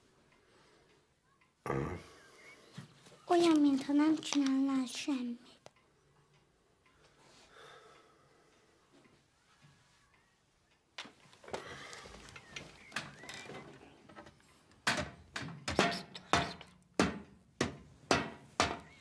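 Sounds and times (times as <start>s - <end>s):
plastic toy banging on tabletop: 14.9s - 18.9s.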